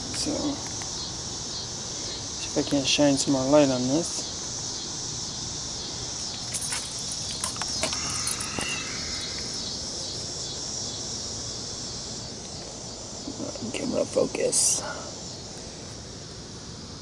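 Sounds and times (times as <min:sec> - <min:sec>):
insects chirring: 0:00.0 - 0:17.0
clicks and light rattles: 0:06.3 - 0:08.7.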